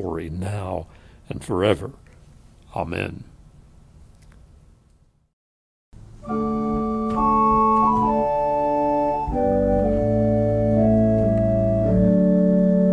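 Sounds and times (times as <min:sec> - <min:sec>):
organ chords: 0:06.0 - 0:12.9
deep bass organ note: 0:06.2 - 0:12.9.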